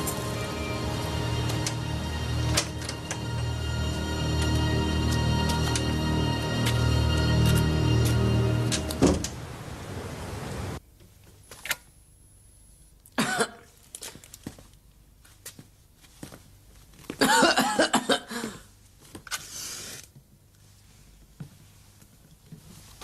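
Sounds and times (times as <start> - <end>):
person coughing: 13.2 - 13.7, 17.2 - 18.7.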